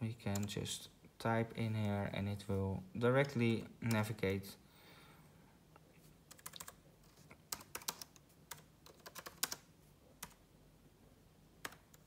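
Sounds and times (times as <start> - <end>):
keyboard typing: 0.3 - 0.6, 6.3 - 10.4, 11.6 - 12.0.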